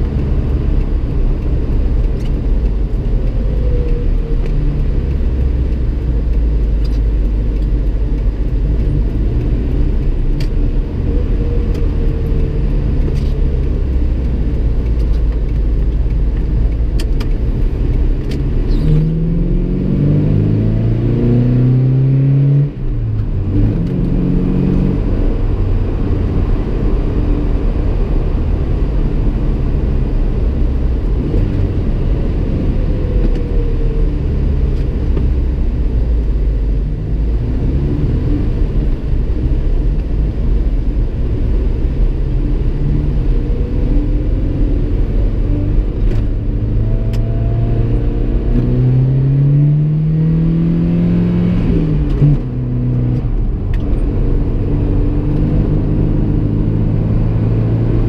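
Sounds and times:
road rumble: 0.0s - 58.0s.

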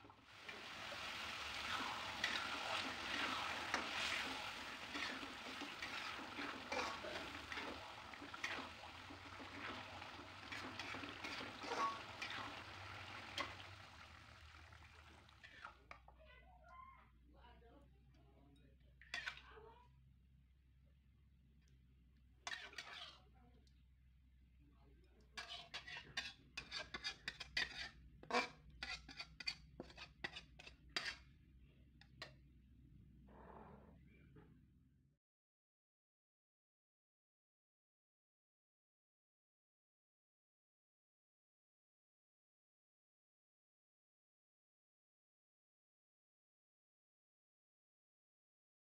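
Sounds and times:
sauce sizzling in a wok: 0.2s - 15.6s
metal spatula scraping a pan: 0.3s - 15.7s, 19.1s - 19.4s, 22.5s - 23.2s, 25.4s - 31.3s.

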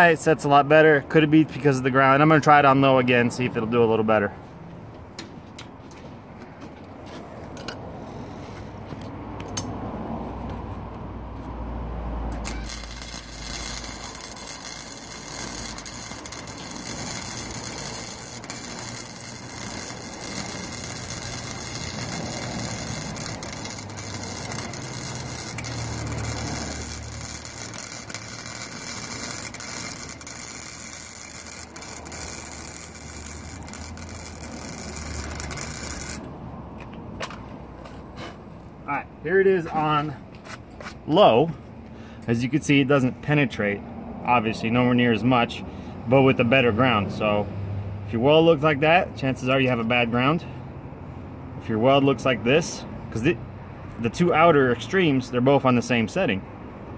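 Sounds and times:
welding arc crackling hiss: 12.4s - 36.3s.

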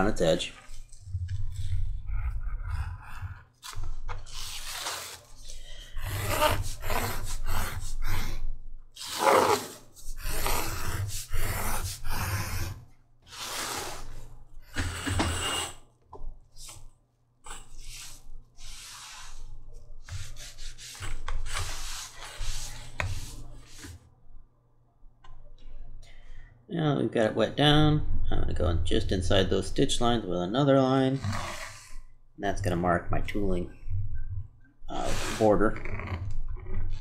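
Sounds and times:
groover scraping leather: 3.6s - 8.4s, 9.0s - 15.8s, 31.2s - 32.0s.

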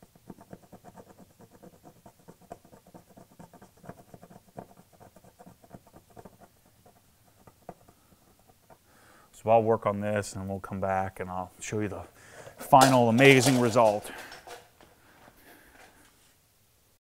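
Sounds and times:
thumbnail scratching plastic: 0.0s - 8.8s.

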